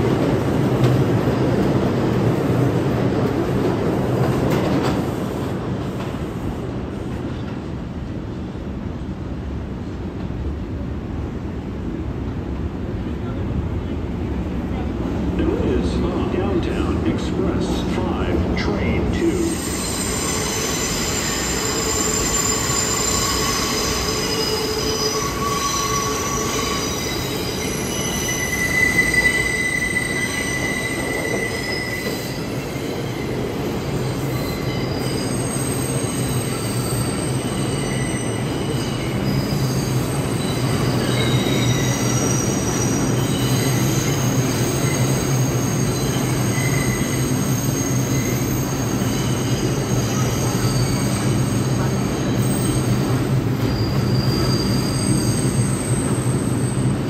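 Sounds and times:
rumble of train wheels: 0.0s - 57.0s
train wheels squealing on rails: 18.8s - 57.0s.

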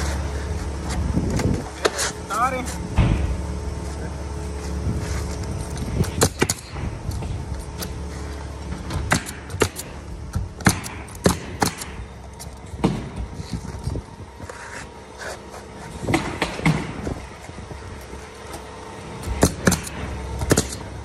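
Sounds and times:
nail gun shots: 6.2s - 6.8s, 9.1s - 10.0s, 10.6s - 12.0s, 19.2s - 20.9s.

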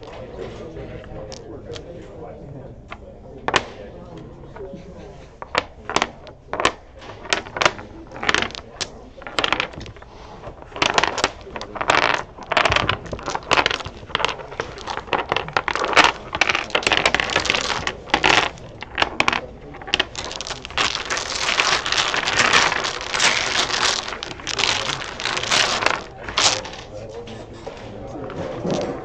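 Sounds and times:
tiles shuffling rattle: 5.2s - 29.0s
dominoes clattering on wooden table: 5.4s - 26.9s.

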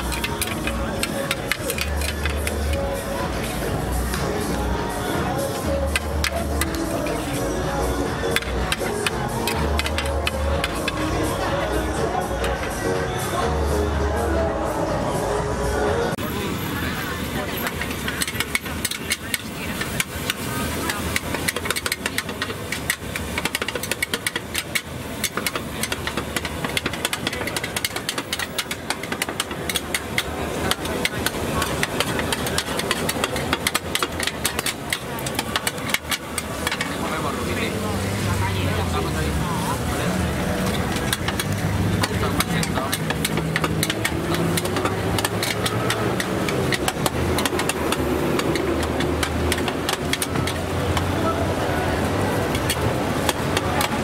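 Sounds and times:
metal spatula clattering in wok: 17.6s - 37.0s.

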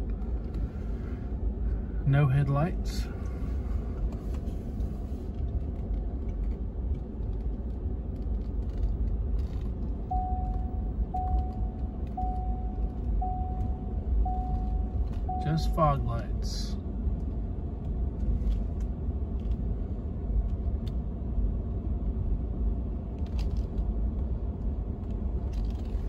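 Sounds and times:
repeating single-pitched chime: 10.1s - 16.0s.

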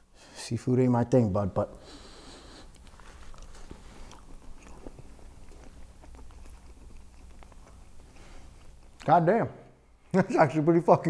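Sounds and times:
wet chewing clicks: 2.5s - 9.1s.

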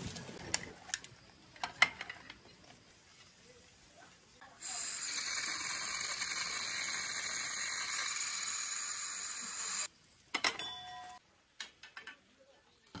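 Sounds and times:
gas hissing from stove: 4.6s - 9.9s.

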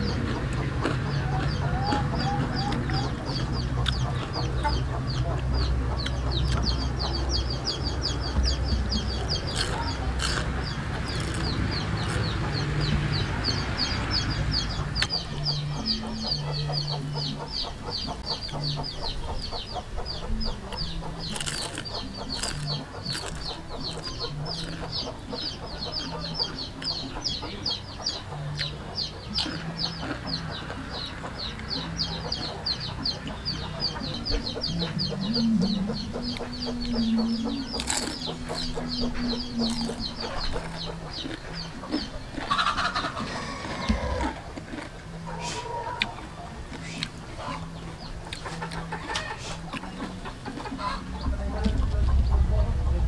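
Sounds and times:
chickens clucking: 0.0s - 53.0s
crunching crispy fried food: 9.4s - 12.4s, 21.3s - 24.8s, 29.4s - 30.3s, 37.8s - 44.9s.

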